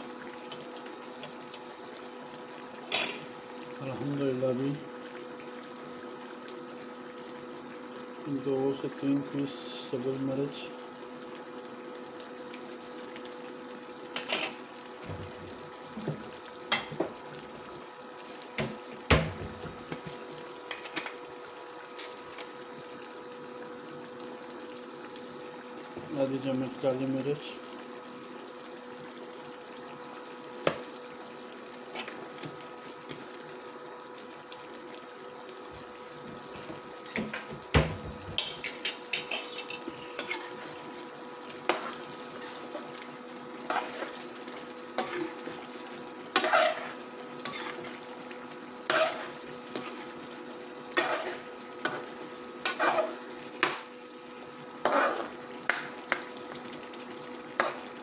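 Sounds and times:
gravy simmering: 0.0 - 58.0
induction cooktop high whine: 0.0 - 58.0.

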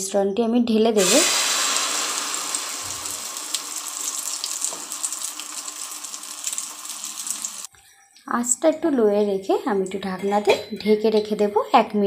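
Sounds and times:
egg sizzling in hot oil: 1.0 - 7.7.

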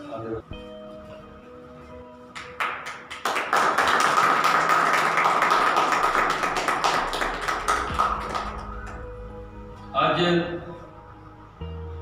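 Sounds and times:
group applauding: 2.4 - 9.2.

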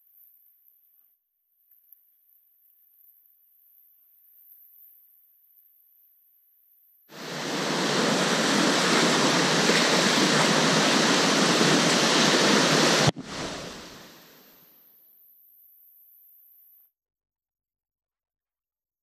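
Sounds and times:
whitewater rushing: 7.1 - 14.5.

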